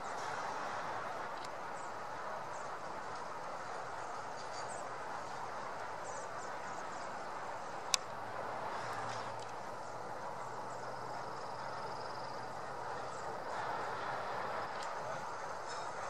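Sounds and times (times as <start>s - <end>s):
outdoor background rush: 0.0s - 16.0s.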